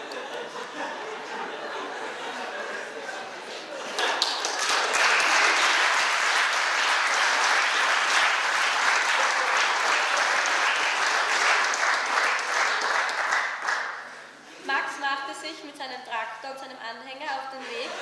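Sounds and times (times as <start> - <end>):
audience applause: 3.6 - 14.3.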